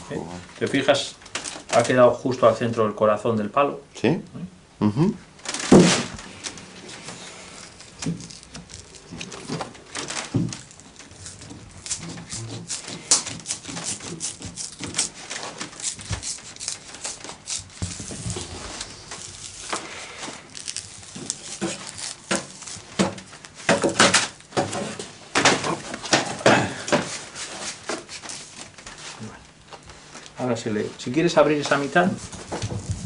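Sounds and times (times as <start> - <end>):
stick cracking and snapping: 7.7 - 24.5.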